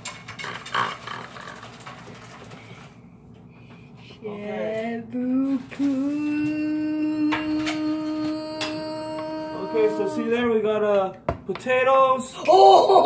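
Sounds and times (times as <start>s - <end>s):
faint room noise: 0.0s - 13.0s
person humming: 4.2s - 10.5s.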